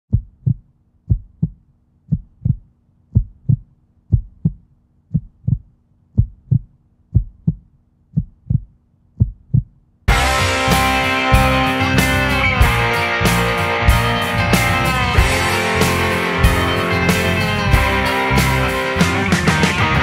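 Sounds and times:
heartbeat thumps: 0.1 - 10.2
guitar-led rock music: 10.1 - 20.0.

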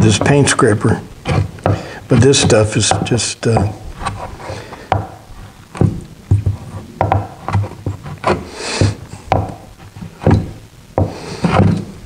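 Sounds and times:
paint scraper scraping wood: 0.0 - 12.0.

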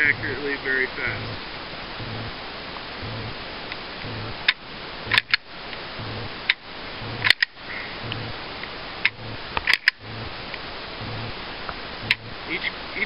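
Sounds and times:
steady hiss: 0.0 - 13.0
pistol trigger clicks: 5.1 - 5.4, 7.2 - 7.5, 9.6 - 10.0.

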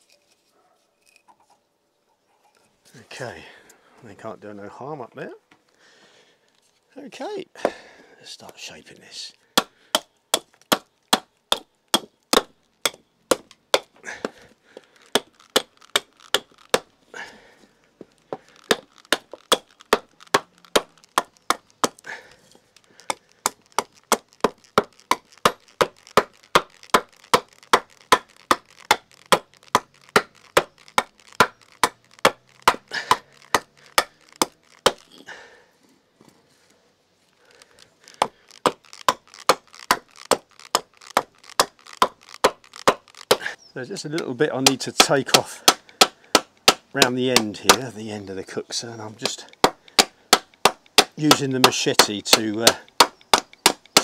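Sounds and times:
axe chopping wood: 9.6 - 14.4, 15.1 - 16.9, 18.3 - 22.3, 22.9 - 35.2, 38.2 - 48.0, 49.2 - 54.0.

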